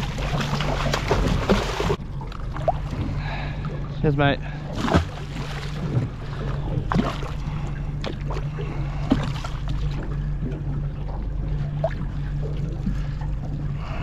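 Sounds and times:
boat engine idling: 0:00.0 - 0:14.0
water splashes: 0:00.0 - 0:14.0.

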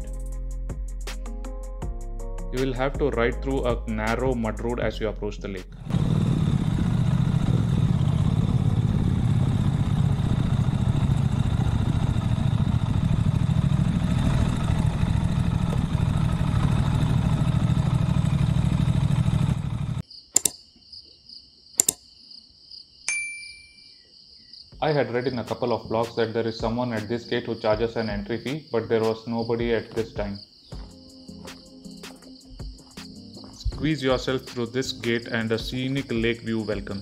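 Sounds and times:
motorcycle engine rumbling: 0:05.6 - 0:20.0, 0:29.4 - 0:37.0
crickets chirping: 0:06.4 - 0:37.0
sharp clicks: 0:20.4 - 0:20.6, 0:21.8 - 0:22.1.

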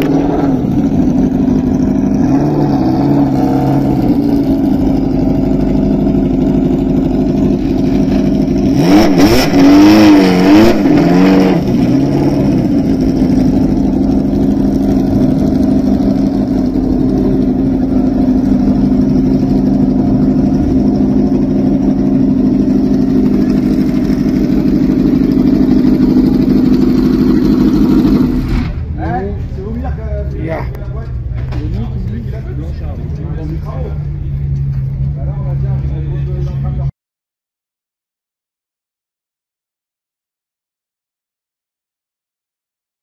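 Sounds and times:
engine throttle blips: 0:00.0 - 0:36.8
car engine running: 0:00.0 - 0:36.9.

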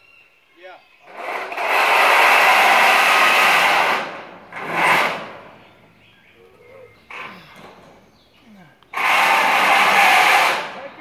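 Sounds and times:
metal roof panel scraping: 0:01.1 - 0:05.6.

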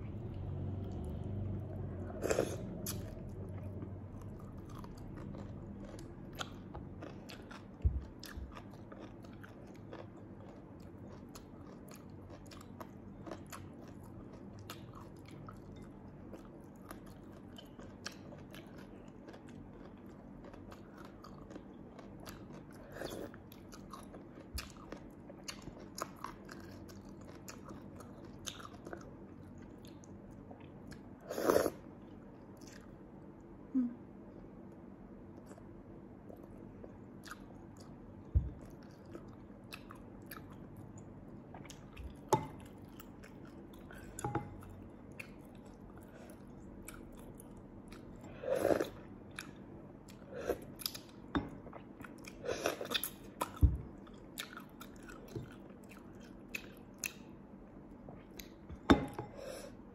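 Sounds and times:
wet eating sounds: 0:02.1 - 0:33.0.

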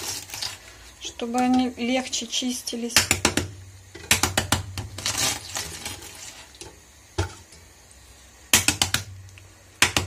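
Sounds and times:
eggshells tapped on countertop: 0:08.5 - 0:09.1, 0:09.8 - 0:10.0.

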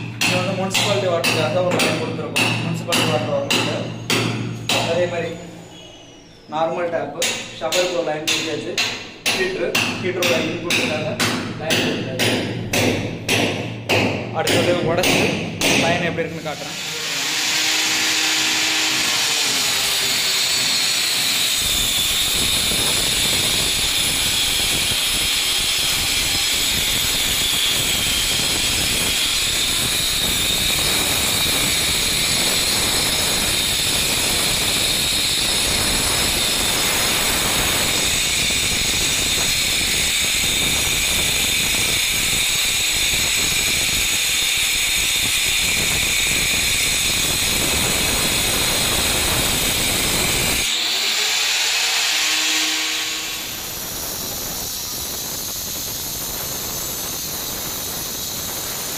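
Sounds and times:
wall chaser grinding masonry: 0:14.4 - 0:58.9.

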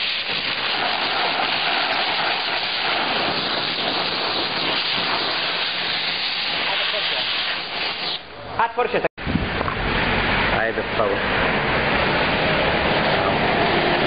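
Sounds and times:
steam jet hissing: 0:00.0 - 0:08.3.

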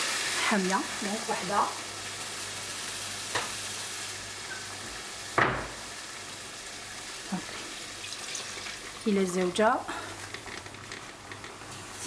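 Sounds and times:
caramel sizzling in a saucepan: 0:00.0 - 0:12.0.

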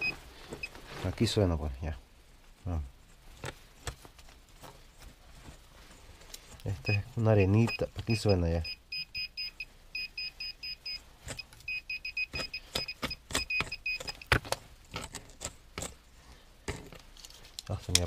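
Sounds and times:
pinpointer beeping: 0:06.8 - 0:14.3.

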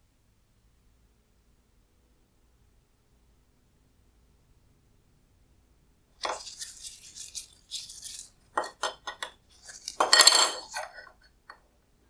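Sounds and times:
circuit board handling rustle: 0:06.2 - 0:11.2.

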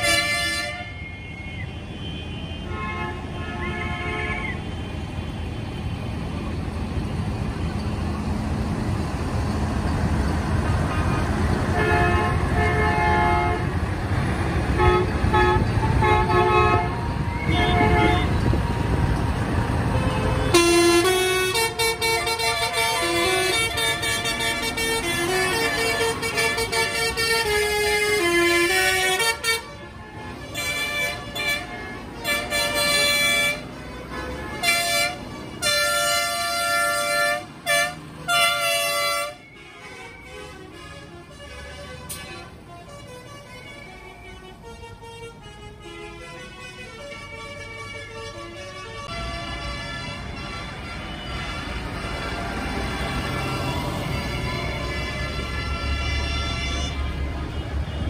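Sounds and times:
tractor engines running: 0:04.6 - 0:44.7, 0:49.0 - 0:58.0
horns tooting short blasts: 0:14.8 - 0:18.5, 0:19.9 - 0:42.5.

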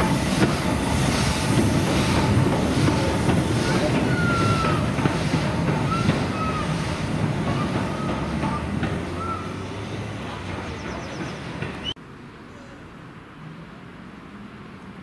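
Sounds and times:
steam locomotive hissing: 0:00.0 - 0:12.0.

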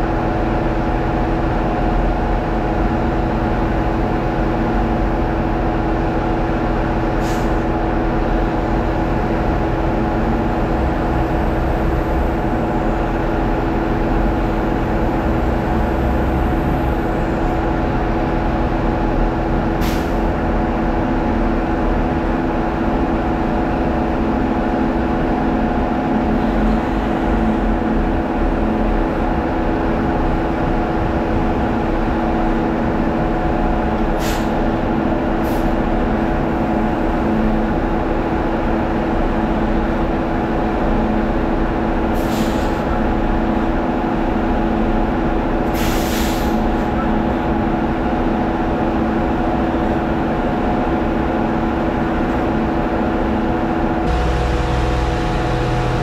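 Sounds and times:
diesel truck engines running: 0:00.0 - 0:56.0
air brake hisses: 0:07.2 - 0:07.6, 0:19.8 - 0:20.2, 0:34.2 - 0:34.6, 0:42.2 - 0:42.9, 0:45.7 - 0:46.8.

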